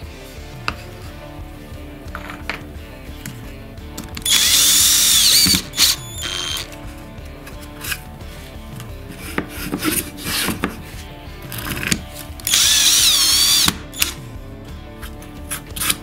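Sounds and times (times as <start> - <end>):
drill-driver motor whining: 4.2 - 6.8, 11.6 - 14.2.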